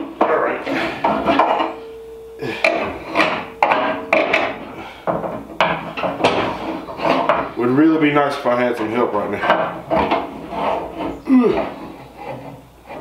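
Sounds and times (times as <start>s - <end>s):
knocks and clunks of handling: 0.0s - 7.6s, 9.4s - 13.0s
steady tone: 1.0s - 7.4s.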